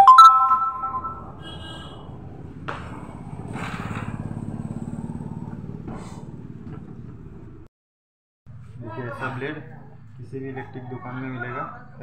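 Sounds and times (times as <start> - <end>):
small engine passing by: 1.2 - 7.6.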